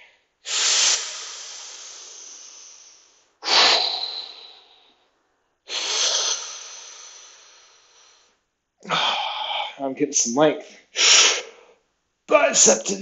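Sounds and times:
man exhaling forcefully: 0.5s - 5.0s, 5.7s - 8.3s, 8.9s - 9.7s.

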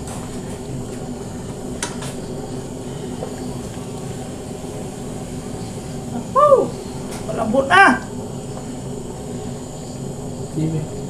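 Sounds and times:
stove burner roaring: 0.0s - 11.0s.

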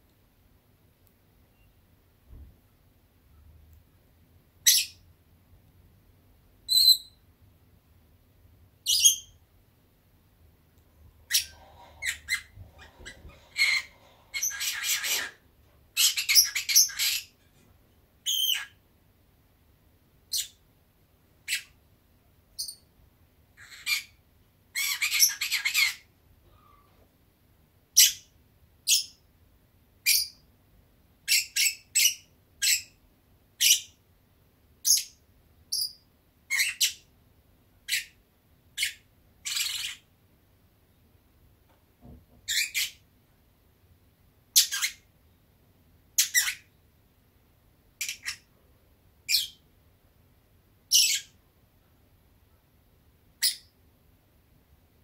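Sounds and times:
bird chirping: 4.6s - 5.1s, 6.6s - 7.3s, 8.8s - 9.4s, 11.2s - 17.4s, 18.2s - 18.8s, 20.3s - 20.6s, 22.5s - 22.9s, 24.8s - 26.1s, 28.0s - 29.2s, 30.0s - 30.4s, 31.3s - 33.0s, 34.8s - 37.1s, 38.8s - 40.1s, 42.5s - 43.0s, 44.5s - 45.1s, 46.2s - 46.8s, 48.0s - 48.5s, 49.2s - 49.6s, 50.9s - 51.4s, 53.4s - 53.8s.

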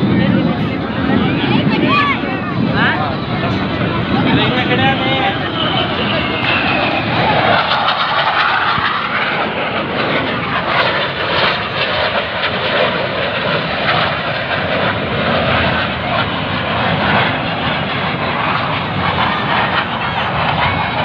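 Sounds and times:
jet flying overhead: 0.0s - 21.0s.

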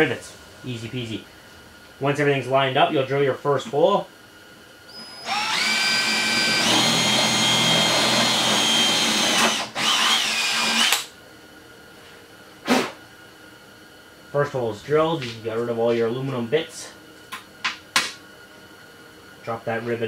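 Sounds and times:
power drill drilling metal: 4.9s - 11.1s.

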